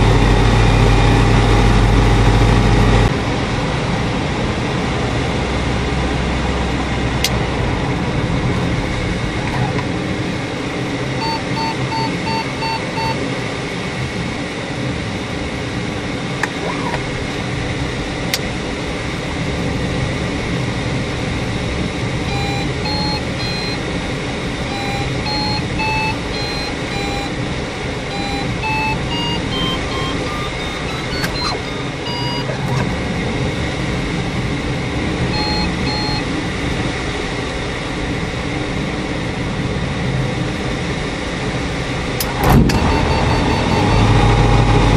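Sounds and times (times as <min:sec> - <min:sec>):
electronic variometer beeping: 0:00.0 - 0:03.1, 0:11.1 - 0:13.2, 0:22.3 - 0:32.9, 0:35.2 - 0:36.4, 0:42.2 - 0:44.9
light aircraft cockpit drone: 0:00.0 - 0:44.9.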